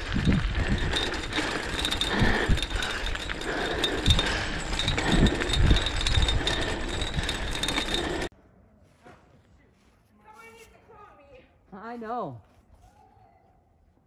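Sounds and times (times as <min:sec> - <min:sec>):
rough rumble of trail travel: 0:00.0 - 0:08.3.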